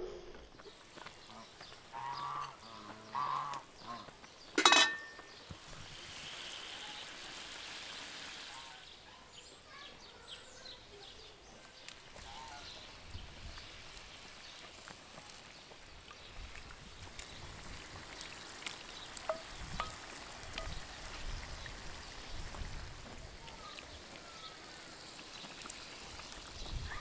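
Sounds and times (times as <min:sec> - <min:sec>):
geese honking: 0:01.3 - 0:04.1.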